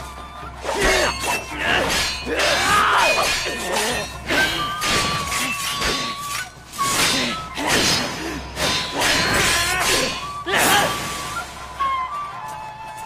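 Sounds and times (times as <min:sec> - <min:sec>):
background music: 0:00.0 - 0:13.0
swords clashing: 0:00.7 - 0:11.0.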